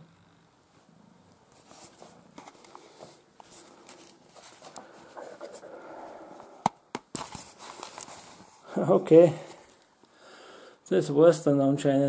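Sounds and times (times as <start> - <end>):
faint rustling: 0.7 - 10.2.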